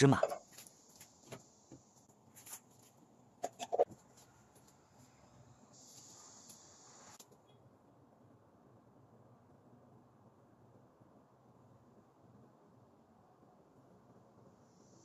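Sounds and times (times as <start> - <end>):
faint hiss: 4.7 - 7.5, 13.9 - 15.0.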